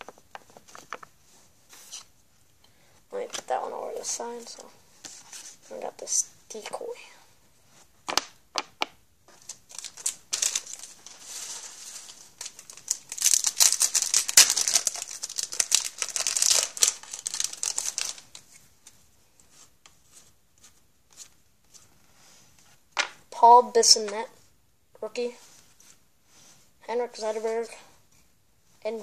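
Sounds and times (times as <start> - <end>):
foil pack crinkling: 9.4 - 18.4.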